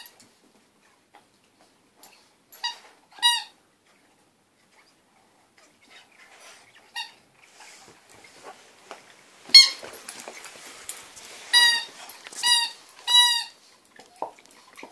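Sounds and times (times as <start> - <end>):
squeaky toy squeaks: 2.6 - 3.5, 9.5 - 9.8, 11.5 - 13.6
dog chewing: 7.7 - 14.9.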